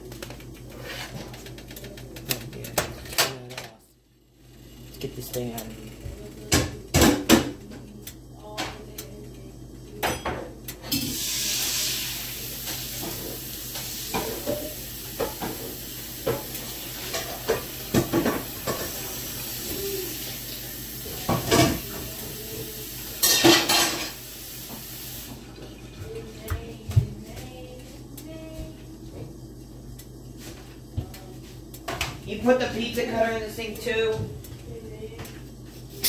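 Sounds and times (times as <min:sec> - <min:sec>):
steady hiss: 0:10.9 - 0:25.4
pans and plates clattering: 0:23.2 - 0:24.2.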